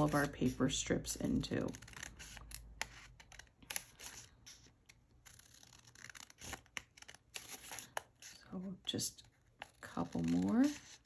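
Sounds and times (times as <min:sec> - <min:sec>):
scissors snipping paper: 0:00.0 - 0:08.4, 0:09.5 - 0:11.0.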